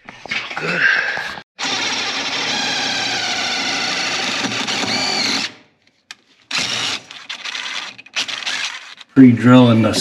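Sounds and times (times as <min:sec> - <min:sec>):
power drill running: 0:01.6 - 0:05.6, 0:06.5 - 0:09.1.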